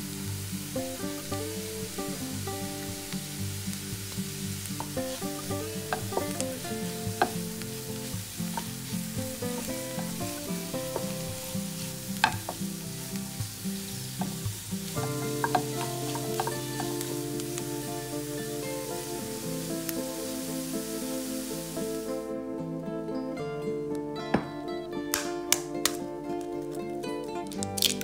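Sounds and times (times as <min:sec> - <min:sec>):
vegetables sizzling in oil: 0:00.0 - 0:22.2
soft background music: 0:00.0 - 0:28.0
spatula taps: 0:04.7 - 0:17.7.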